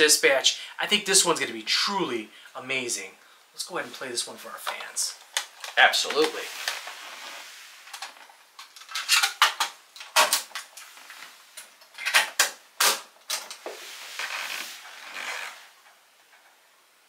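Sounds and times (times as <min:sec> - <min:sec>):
soft rustling: 0:03.7 - 0:08.5, 0:13.6 - 0:16.4.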